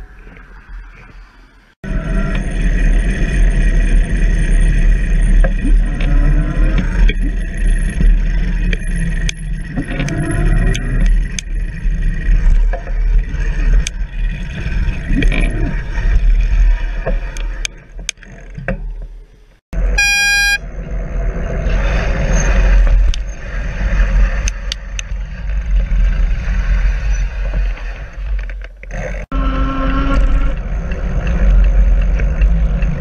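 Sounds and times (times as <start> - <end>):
road and traffic noise: 0.0 - 33.0
short horn toot: 19.9 - 20.6.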